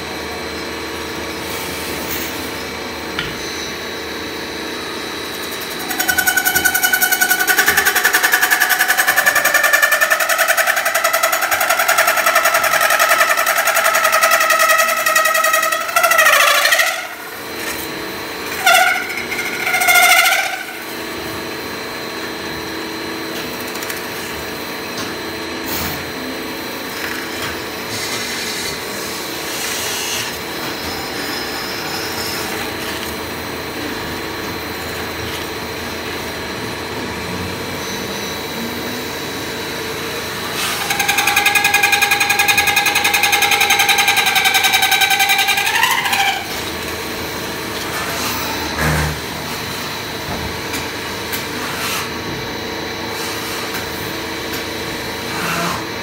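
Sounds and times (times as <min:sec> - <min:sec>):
metal-spinning machine running: 0:00.6 - 0:56.0
loud high squeal: 0:04.9 - 0:21.9, 0:27.9 - 0:33.0, 0:37.5 - 0:50.0
wavering squeals: 0:05.3 - 0:21.1, 0:40.4 - 0:46.7.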